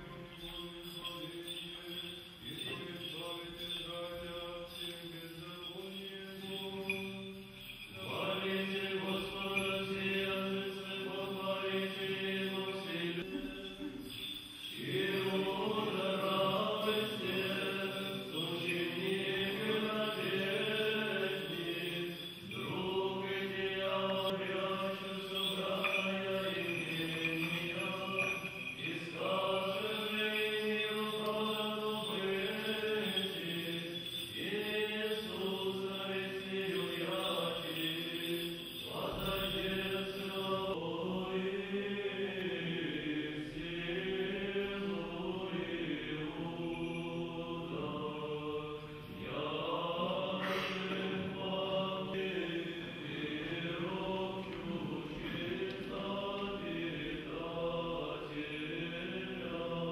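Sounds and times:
men's voices chanting: 0:14.8 - 0:59.9.

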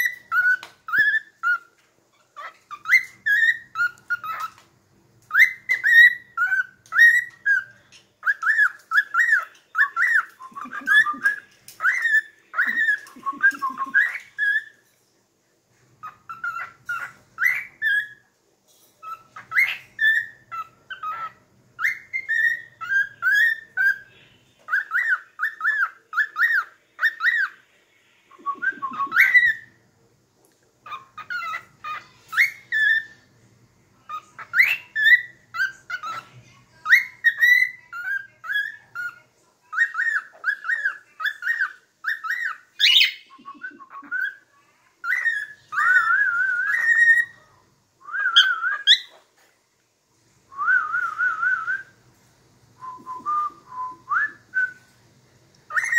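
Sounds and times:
cockatiel whistling: 0:00.0 - 0:01.7, 0:05.3 - 0:14.8, 0:16.0 - 0:18.2, 0:19.0 - 0:27.6, 0:28.3 - 0:29.8, 0:30.8 - 0:33.2, 0:34.1 - 0:44.4, 0:45.0 - 0:47.4, 0:48.0 - 0:49.2, 0:50.5 - 0:52.0, 0:52.8 - 0:54.9, 0:55.7 - 0:55.9.

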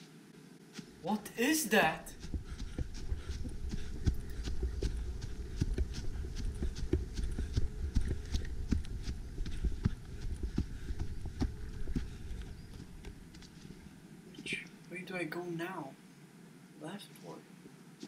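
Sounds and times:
low microphone rumble: 0:02.0 - 0:14.0.

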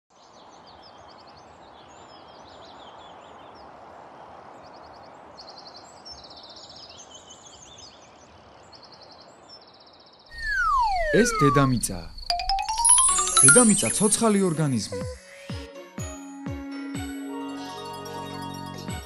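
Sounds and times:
birds chirping and trilling: 0:05.5 - 0:15.4.

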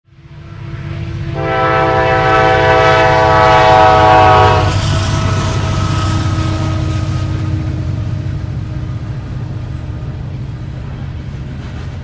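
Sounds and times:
low train rumble: 0:00.1 - 0:12.0
locomotive air horn: 0:00.4 - 0:08.2.

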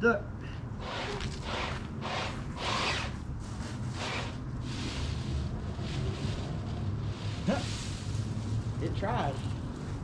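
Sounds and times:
dry leaves rustling: 0:03.1 - 0:10.0.

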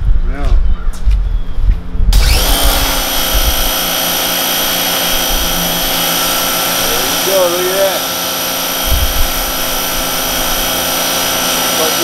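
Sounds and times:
pressure washer pump whine: 0:02.1 - 0:12.0
water jet hissing on panels: 0:05.8 - 0:12.0.

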